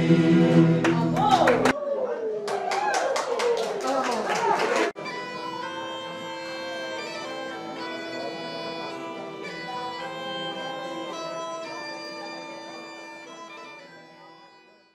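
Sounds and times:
bagpipe music: 5.0 - 14.9.

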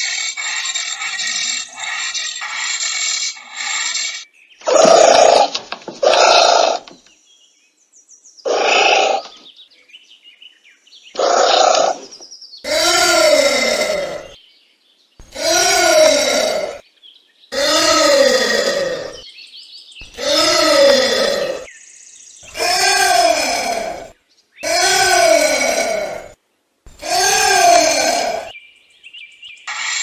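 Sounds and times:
anteater hoarse cries: 4.6 - 6.9, 8.5 - 9.3, 11.2 - 14.4, 15.2 - 16.8, 17.5 - 19.2, 20.0 - 21.7, 22.4 - 28.6.

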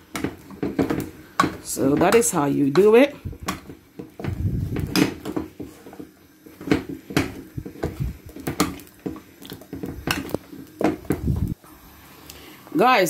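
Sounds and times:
spatula knocking on metal pan: 0.0 - 5.8, 6.6 - 11.2
dough thudding: 0.0 - 11.6.

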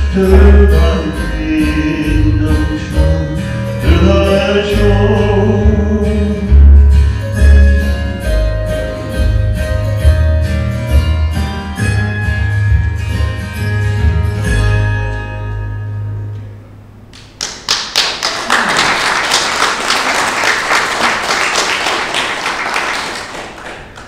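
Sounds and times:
instrumental music: 0.0 - 16.7
group of people applauding: 17.1 - 24.0.

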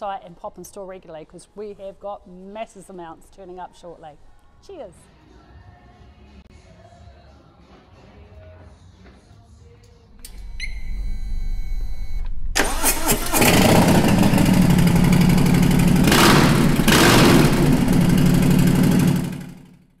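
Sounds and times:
engine starting and running: 10.2 - 20.0
low rumble: 10.4 - 18.6.

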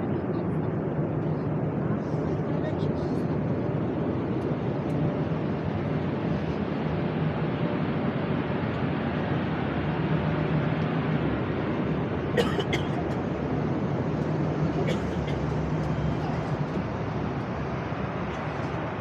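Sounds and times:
jet engines droning: 0.0 - 19.0.

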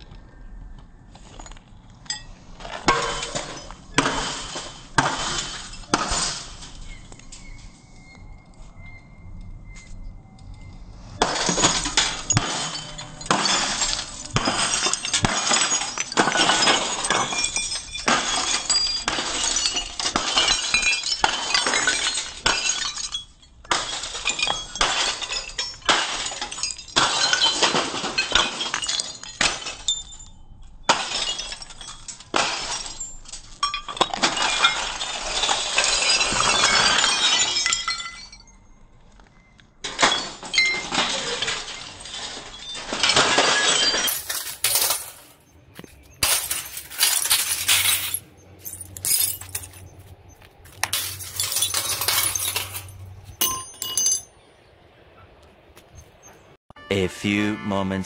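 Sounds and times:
glass cracking and shattering: 2.1 - 7.6, 11.2 - 50.1, 50.7 - 54.3
glass shards clinking: 11.2 - 38.6, 39.9 - 54.3.

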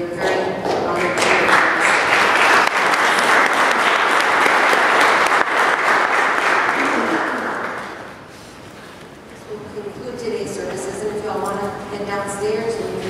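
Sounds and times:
audience applauding: 0.9 - 8.2.

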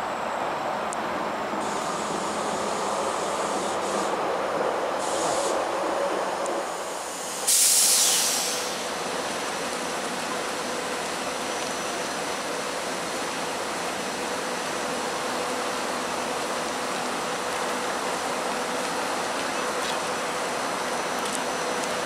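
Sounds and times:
train hum with steady tone: 0.0 - 22.0
air hiss burst: 5.0 - 5.6, 6.8 - 8.9.

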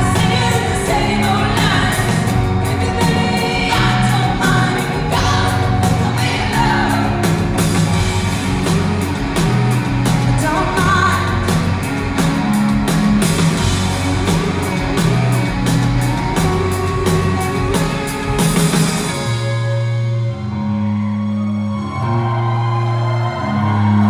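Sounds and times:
person singing: 0.0 - 7.4
drums: 0.0 - 24.0
electric guitars: 0.0 - 24.0
keyboards: 0.0 - 24.0.

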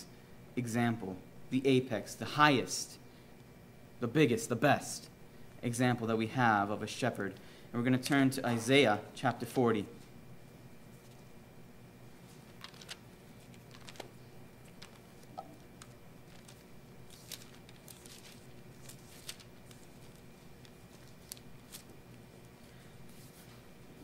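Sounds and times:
low room hum: 0.0 - 24.0
pages rustling being turned: 10.9 - 11.3, 12.2 - 23.7.

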